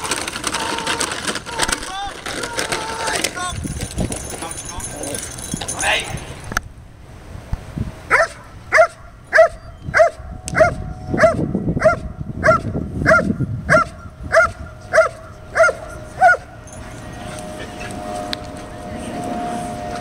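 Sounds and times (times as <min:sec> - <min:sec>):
dog barking: 0:08.1 - 0:16.5.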